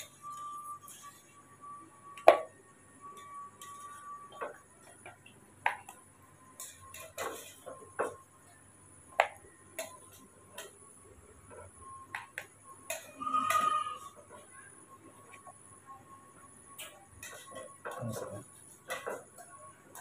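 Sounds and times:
faint steady whine: 0.0s - 20.0s
metal spoon clinking against pot: 3.2s - 4.2s, 6.6s - 8.2s, 9.8s - 10.8s, 12.8s - 14.2s, 16.8s - 18.2s.

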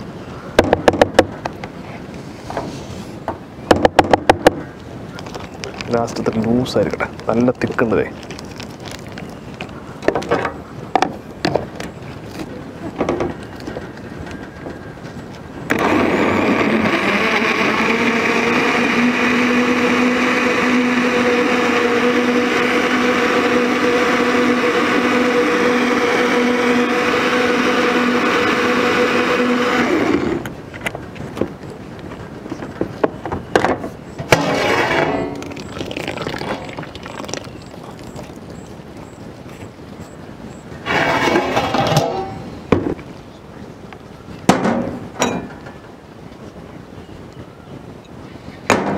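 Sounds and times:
blender motor hum: 15.7s - 30.5s, 34.4s - 37.8s, 40.8s - 42.0s.

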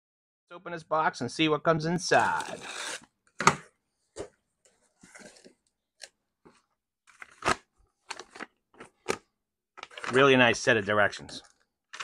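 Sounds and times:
box packaging rustling and scraping: 2.1s - 3.1s, 4.1s - 5.7s, 9.8s - 10.4s.

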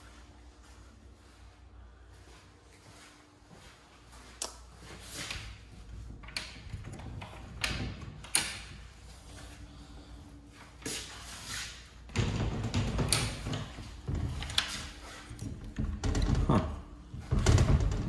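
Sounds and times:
door clicks and knocks: 12.1s - 14.8s, 15.4s - 18.0s.

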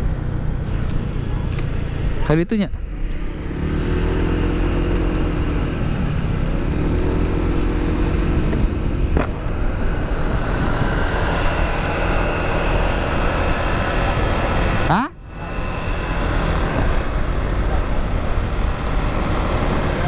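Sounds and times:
wind rushing over microphone: 0.0s - 14.9s
high whine: 0.0s - 20.0s
scooter engine: 0.0s - 20.0s.

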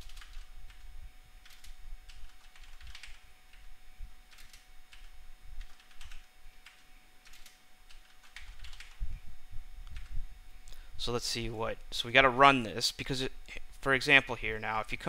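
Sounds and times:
computer keyboard typing: 0.0s - 0.8s, 1.4s - 3.6s, 4.3s - 9.0s, 9.9s - 10.1s.

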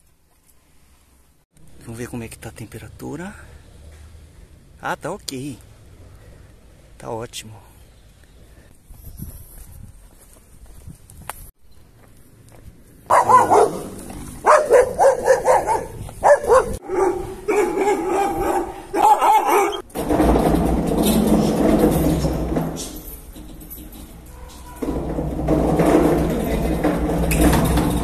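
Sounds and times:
dog barking in short barks: 13.1s - 19.8s.

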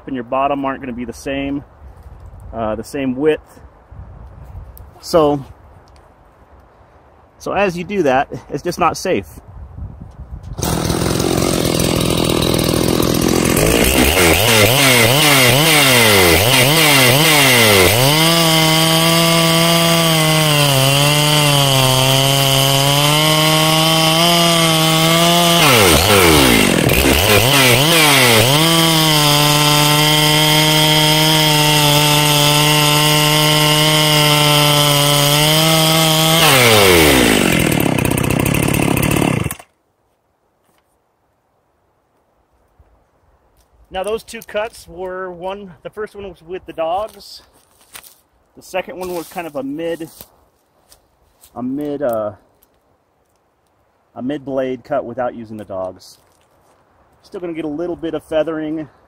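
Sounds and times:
chainsaw cutting log: 10.6s - 39.7s, 48.7s - 50.3s.

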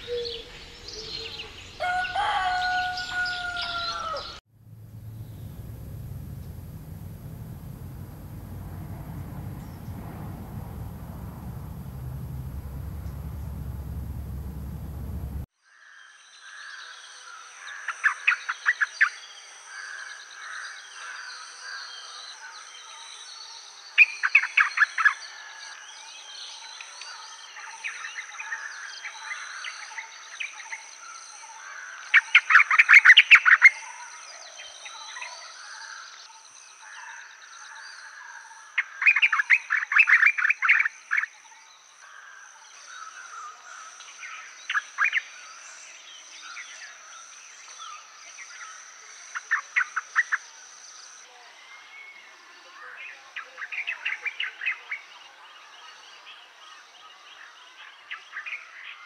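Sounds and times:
steady high-pitched whine: 4.6s - 15.5s.

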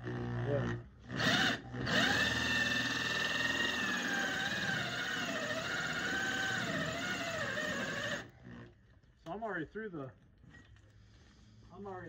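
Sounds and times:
electric drill hole saw whining: 1.1s - 8.3s.

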